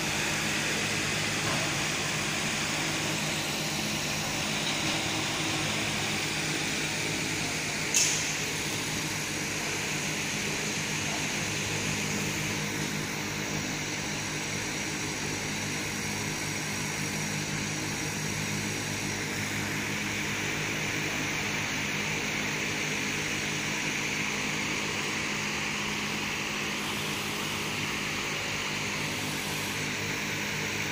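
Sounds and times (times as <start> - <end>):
laser engraving machine humming: 0.0 - 30.9
sharp click: 7.9 - 8.4.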